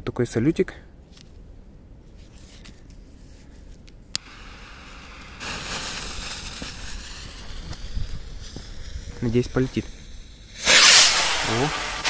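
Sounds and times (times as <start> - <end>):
firework fuse hissing: 4.2 - 12.0.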